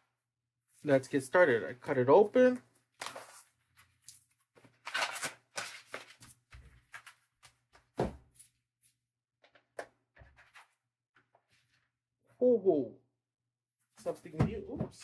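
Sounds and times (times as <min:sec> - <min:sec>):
cardboard and paper rustling: 0:02.8 - 0:08.6, 0:09.5 - 0:11.9.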